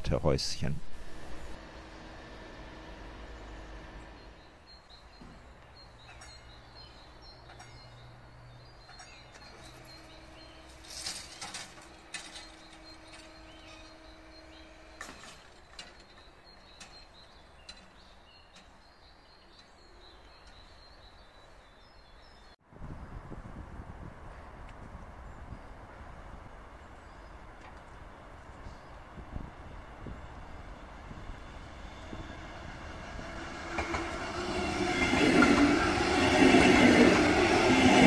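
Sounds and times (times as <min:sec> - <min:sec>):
small birds chirping: 0:03.3 - 0:11.5, 0:12.2 - 0:22.6.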